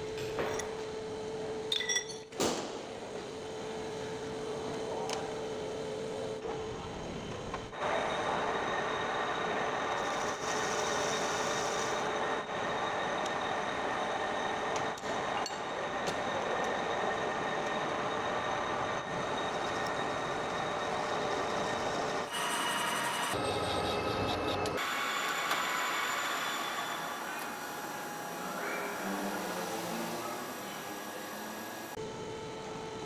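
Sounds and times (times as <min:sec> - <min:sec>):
metal lathe running: 0:07.7 - 0:32.0.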